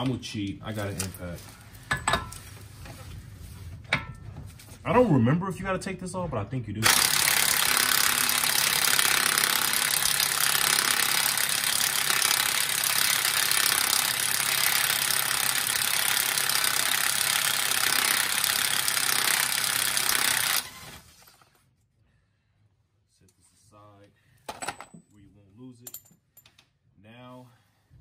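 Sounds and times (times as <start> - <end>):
impact wrench hammering: 6.8 - 20.7.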